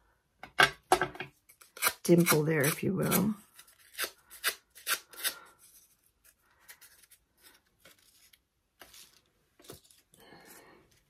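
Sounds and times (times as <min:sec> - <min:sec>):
paper rustling: 0:05.6 - 0:10.2.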